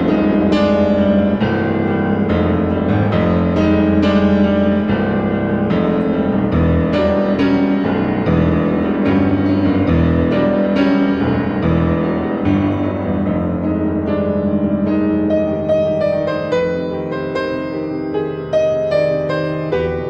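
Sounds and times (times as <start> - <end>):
silent-film style piano music: 0.0 - 20.0.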